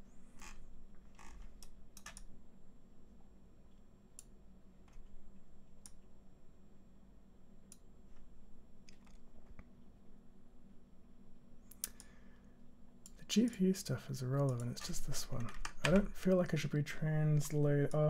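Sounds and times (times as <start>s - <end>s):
faint low hum: 0.0s - 18.0s
keyboard and mouse clicks: 1.4s - 2.3s, 8.8s - 9.7s, 11.7s - 12.1s, 14.4s - 16.6s.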